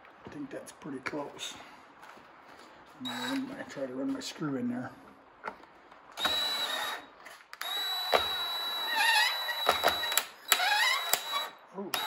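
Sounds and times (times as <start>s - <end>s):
cordless drill whining: 3.0s - 3.5s, 6.2s - 12.0s.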